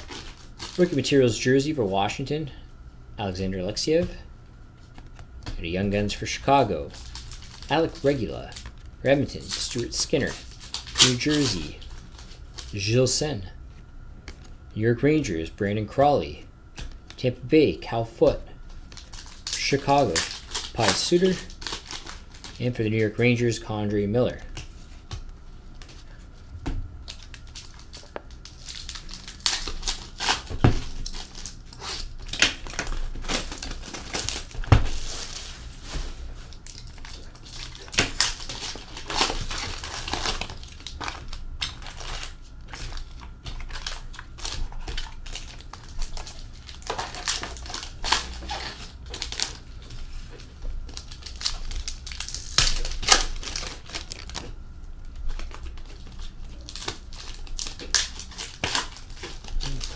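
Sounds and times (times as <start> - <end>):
plastic wrapping crinkling and tearing: 0.0 - 1.1, 6.8 - 12.8, 18.7 - 22.7, 27.0 - 59.9.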